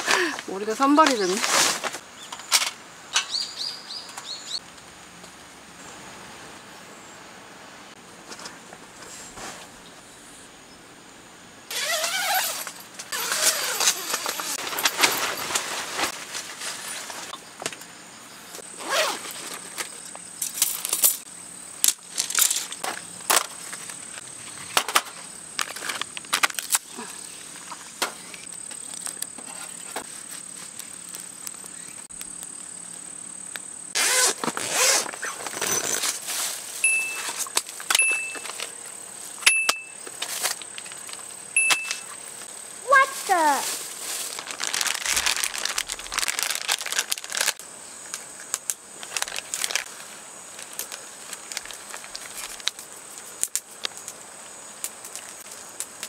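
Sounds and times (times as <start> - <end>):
high insect trill: 11.7 - 56.0
short high beeps: 36.8 - 37.3, 38.0 - 38.4, 39.5 - 40.0, 41.6 - 42.1.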